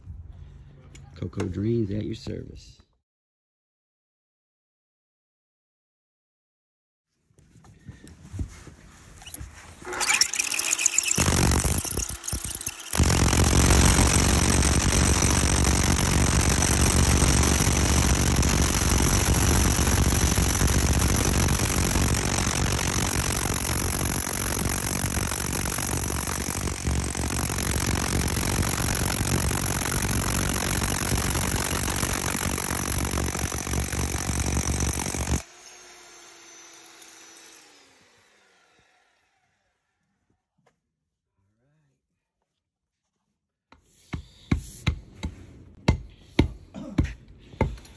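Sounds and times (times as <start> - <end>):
jackhammer pounding soil: 9.8 - 35.5
motor winding down: 9.8 - 39.6.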